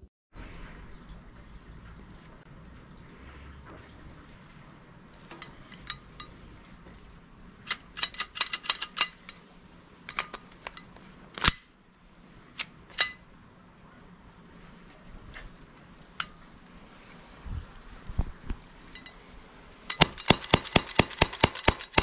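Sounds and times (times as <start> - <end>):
plastic pistol parts clicking: 7.6 - 9.4, 10.1 - 10.8, 11.4 - 11.7.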